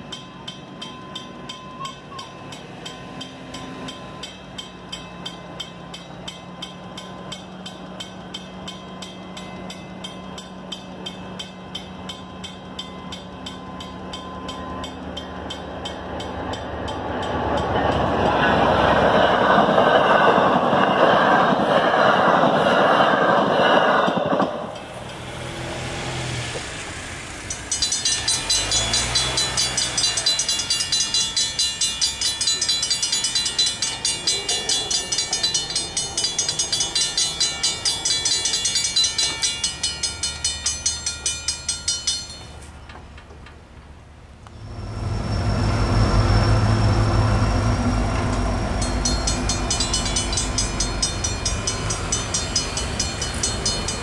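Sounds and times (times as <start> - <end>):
railroad crossing bell ringing: 0.0 - 26.3, 27.2 - 43.4, 44.6 - 54.0
train passing: 0.0 - 54.0.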